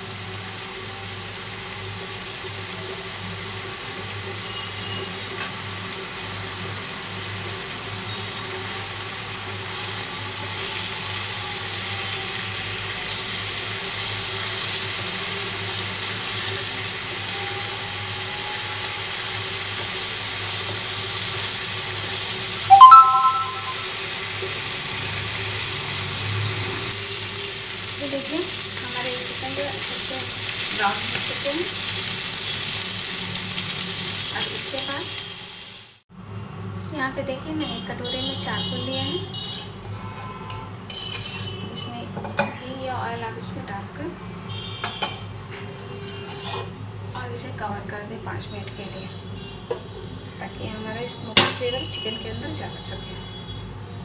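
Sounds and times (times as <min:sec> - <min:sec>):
chicken sizzling in oil: 0:00.0 - 0:36.0.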